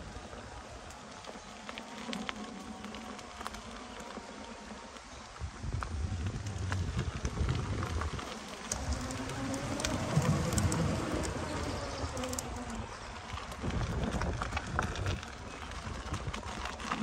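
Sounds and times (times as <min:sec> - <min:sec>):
wheel rumbling over gravel: 0:00.0 - 0:17.0
wind buffeting microphone: 0:05.2 - 0:17.0.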